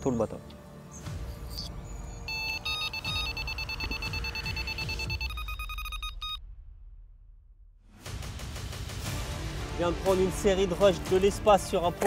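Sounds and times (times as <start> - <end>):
bite alarm rapid high beeps: 2.2 - 6.5.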